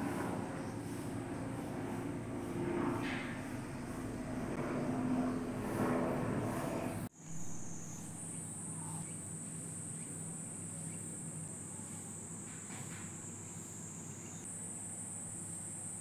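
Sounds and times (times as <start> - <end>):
cicadas droning: 0.0 - 16.0.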